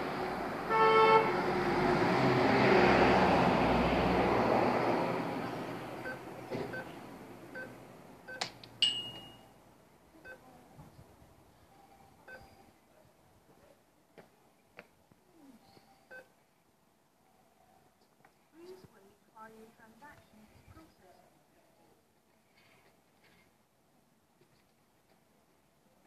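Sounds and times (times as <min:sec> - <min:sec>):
keypad beeps: 0:11.9 - 0:12.7.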